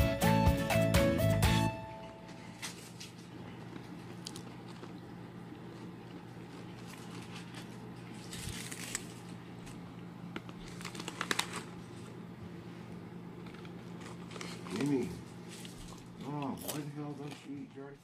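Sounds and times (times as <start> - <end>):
snack bag crinkling: 2.5 - 12.2, 13.4 - 18.0
kitten crunching food: 2.6 - 12.2, 12.9 - 18.0.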